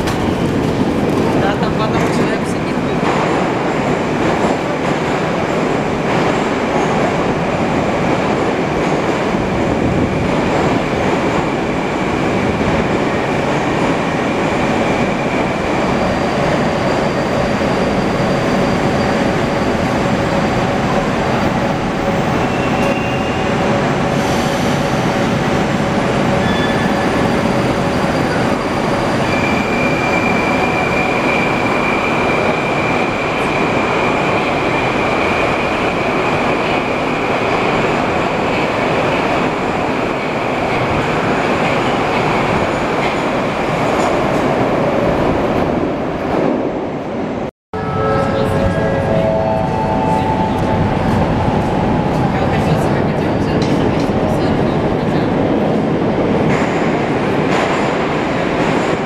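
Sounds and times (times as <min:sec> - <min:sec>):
train rumble: 0:00.0 - 0:59.0
high electric whine of train: 0:45.6 - 0:59.0.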